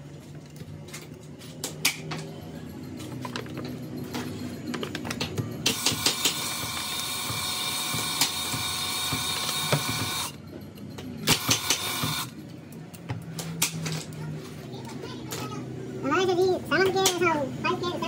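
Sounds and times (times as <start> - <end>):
boring machine high whine: 3.5 - 10.5, 11.2 - 12.4.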